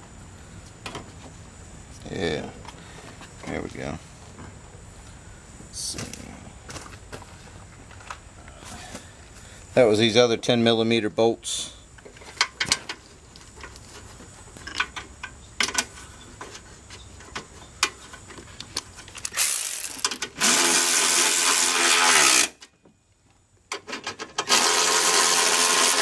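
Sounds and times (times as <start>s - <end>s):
bolts and tools clinking: 12.0s - 22.6s
electric ratchet motor whining: 19.2s - 22.6s, 24.4s - 26.0s.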